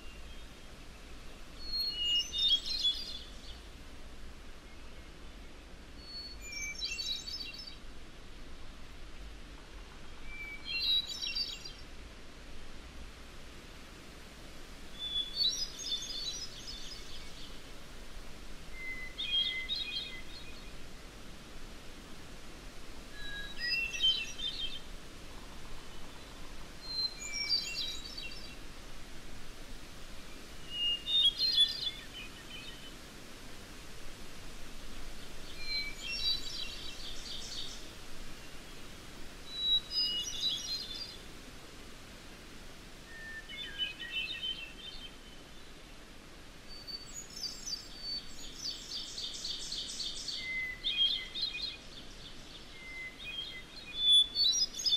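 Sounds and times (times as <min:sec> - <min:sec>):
songbird singing: 0:00.0 - 0:08.0, 0:09.1 - 0:12.1, 0:14.2 - 0:54.9
faint steady hiss: 0:00.0 - 0:54.9.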